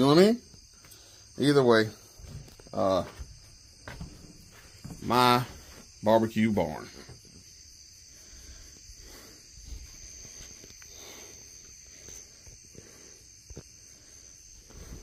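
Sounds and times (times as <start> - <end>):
crickets chirring: 0.0 - 15.0
soft knocks of footsteps: 2.1 - 6.0.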